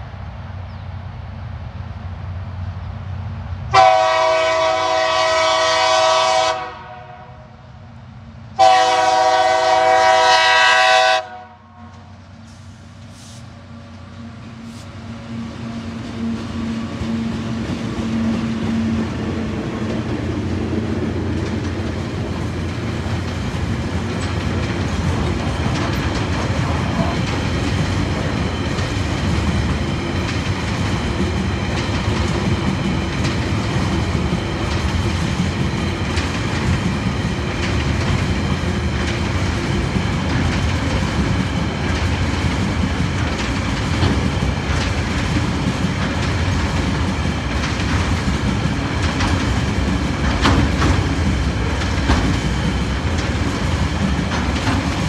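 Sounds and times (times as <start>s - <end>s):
diesel locomotive engines running: 0.0s - 55.0s
locomotive horn blasts: 3.7s - 7.4s, 8.6s - 12.0s
train wagons rolling on rails: 8.3s - 55.0s.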